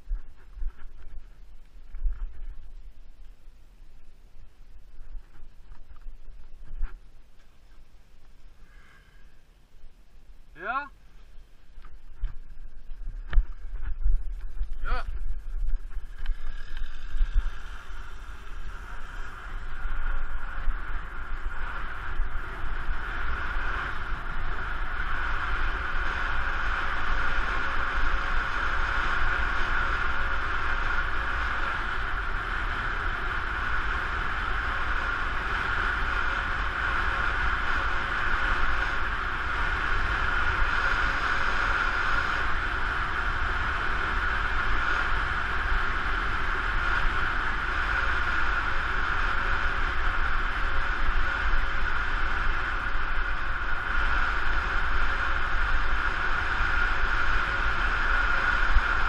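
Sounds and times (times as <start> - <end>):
tyre noise on asphalt: 0.0 - 59.0
wind rumble on microphone: 0.0 - 59.0
wind rushing: 12.0 - 59.0.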